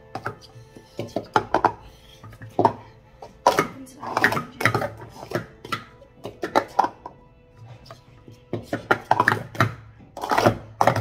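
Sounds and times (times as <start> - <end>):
cups tapping on rubber mat: 0.0 - 11.0
faint music: 0.0 - 11.0
plastic cups clacking: 0.0 - 11.0.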